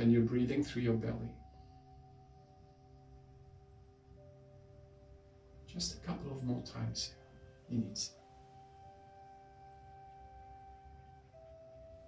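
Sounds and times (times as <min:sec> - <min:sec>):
faint soft background music: 0:00.0 - 0:12.0.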